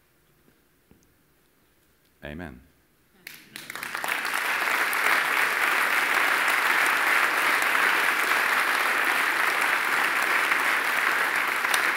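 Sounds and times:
large audience applauding: 0:03.2 - 0:11.9.

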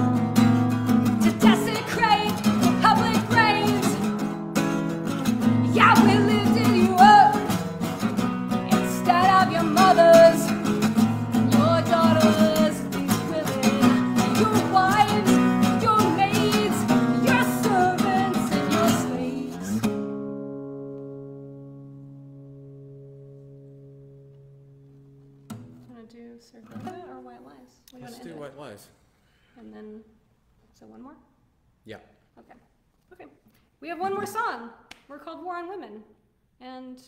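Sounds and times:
strummed acoustic guitar: 0:00.0 - 0:25.9
woman singing: 0:01.0 - 0:04.3, 0:05.4 - 0:07.8, 0:08.5 - 0:19.8.

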